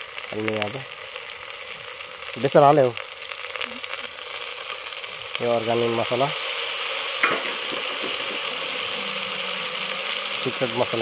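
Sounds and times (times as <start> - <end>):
curry sizzling in a metal pot: 0.0 - 11.0.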